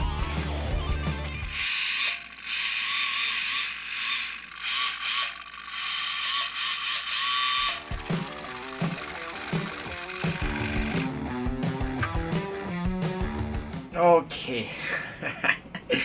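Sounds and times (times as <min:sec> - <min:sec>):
small electric motor whirring: 0:01.2 - 0:11.2.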